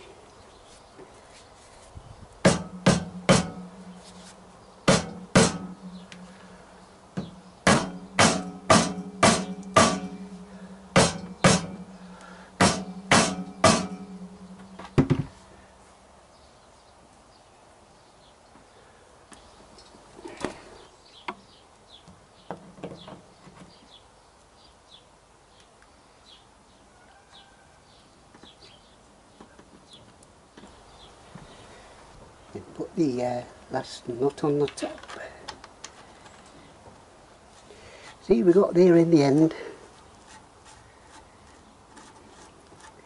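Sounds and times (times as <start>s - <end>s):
rubber mallet striking metal: 2.5s - 4.1s, 4.9s - 6.3s, 7.2s - 15.3s
low ringing hum: 2.6s - 15.7s.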